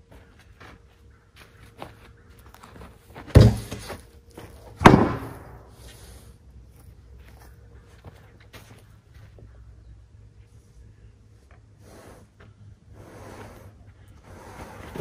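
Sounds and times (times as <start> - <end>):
heavy wood slab thuds on steel: 3.3 - 3.8, 4.8 - 5.7.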